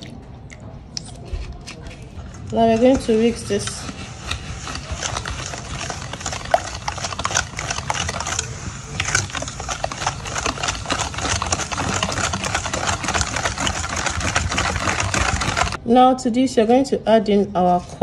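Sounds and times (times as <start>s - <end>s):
whisk clicking against metal bowl: 2.5s - 15.8s.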